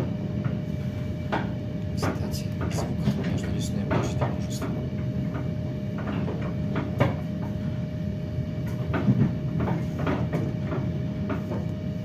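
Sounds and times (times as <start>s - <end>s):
constant hum: 0.0s - 12.0s
train rumble: 0.0s - 12.0s
running gear knocks and clunks: 2.0s - 7.6s.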